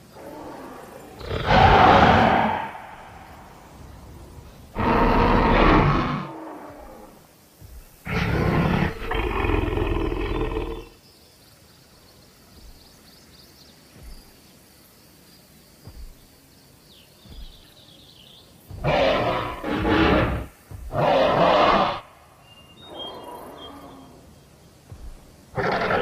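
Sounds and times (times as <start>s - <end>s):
deep dinosaur roar: 0.1s - 7.2s, 8.0s - 10.9s, 18.8s - 22.1s, 25.5s - 26.0s
soft thumps: 13.9s - 14.5s, 15.8s - 16.4s, 17.2s - 17.9s, 18.6s - 21.8s, 24.8s - 25.6s.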